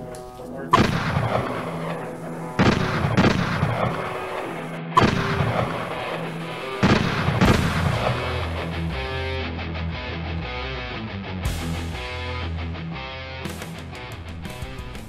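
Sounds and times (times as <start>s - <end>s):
echoing gunshots: 0.7s - 9.3s.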